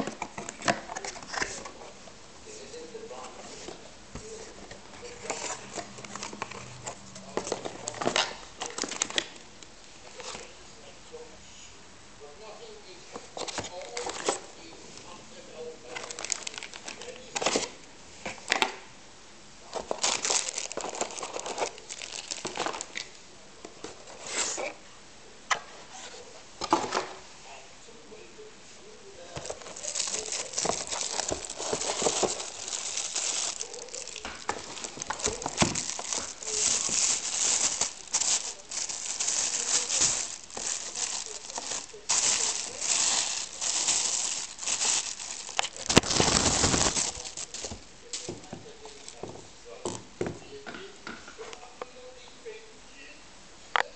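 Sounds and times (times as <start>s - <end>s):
plastic bag crinkling: 5.0s - 9.4s, 15.9s - 17.7s, 19.8s - 23.1s, 29.4s - 49.2s
cardboard box being handled: 29.4s - 49.2s.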